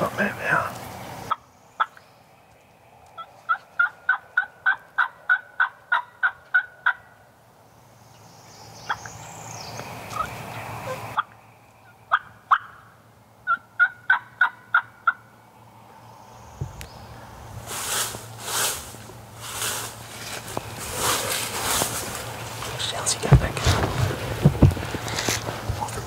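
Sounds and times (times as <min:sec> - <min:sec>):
turkey hen yelps: 0:03.2 - 0:07.1, 0:12.1 - 0:15.2.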